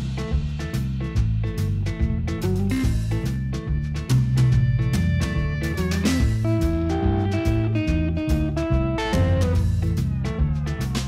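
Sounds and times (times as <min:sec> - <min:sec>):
guitar-led instrumental music: 0:00.0 - 0:11.0.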